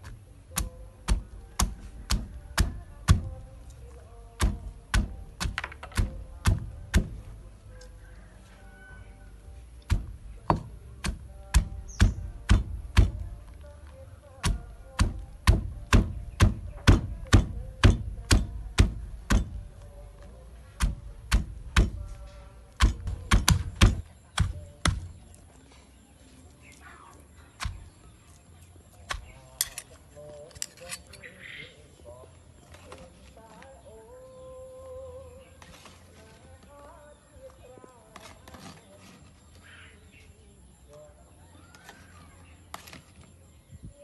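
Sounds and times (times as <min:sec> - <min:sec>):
stone pestle pounding in mortar: 0:14.4 - 0:19.6, 0:20.8 - 0:22.0, 0:22.8 - 0:25.0.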